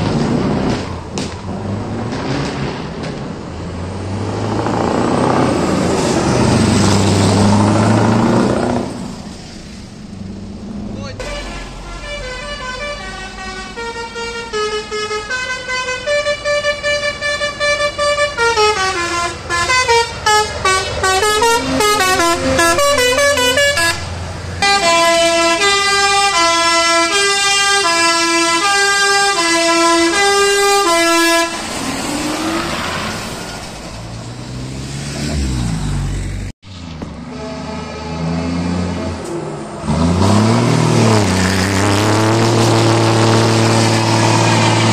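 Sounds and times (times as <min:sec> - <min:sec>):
truck engine revving: 0:00.0 - 0:44.9
musical air horn playing tune: 0:11.2 - 0:31.6, 0:37.2 - 0:39.1.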